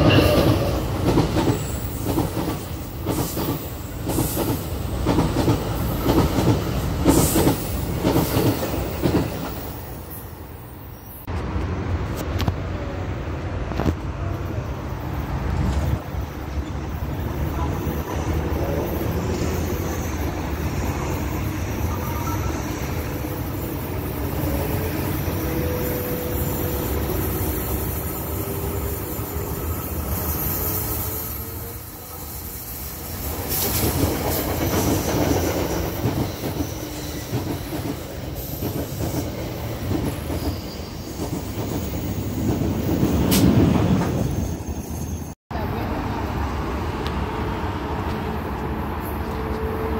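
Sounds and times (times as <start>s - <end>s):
train wheels rumbling on rails: 0.0s - 10.6s, 11.2s - 49.9s
road traffic rumble: 10.6s - 30.3s, 45.5s - 49.9s
high wheel squeal: 16.2s - 42.5s, 44.0s - 45.4s.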